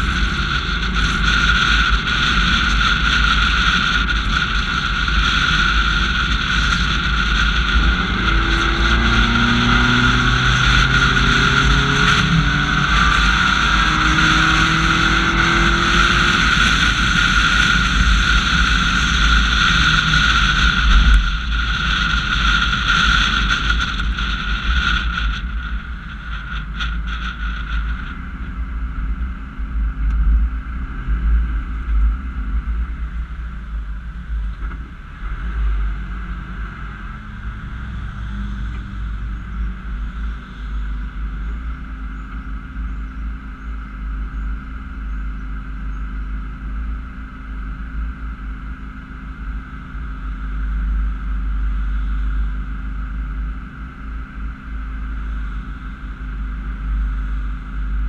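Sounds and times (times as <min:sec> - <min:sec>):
wind noise on microphone: 0:00.0 - 0:44.1
car engine rumble: 0:00.0 - 0:58.0.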